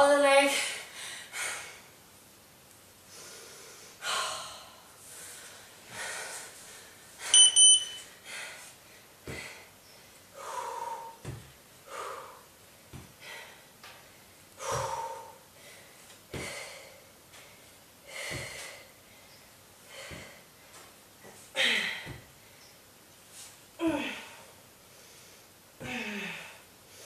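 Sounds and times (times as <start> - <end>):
woman breathing hard: 0.5 - 1.9, 3.1 - 7.4, 8.2 - 20.6, 21.5 - 22.6, 23.8 - 27.0
double electronic beep: 7.3 - 8.0
soft thuds: 11.2 - 11.6.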